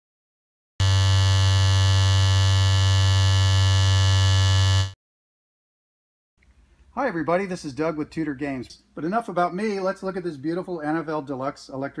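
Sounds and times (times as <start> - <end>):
vibrating metal field buzzing: 0.8 - 4.9.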